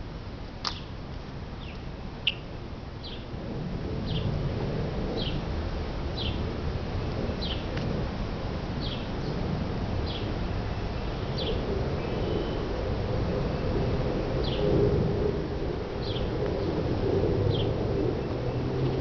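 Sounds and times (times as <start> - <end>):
low outdoor rumble: 0.0 - 19.0
bird chirping: 1.6 - 3.3.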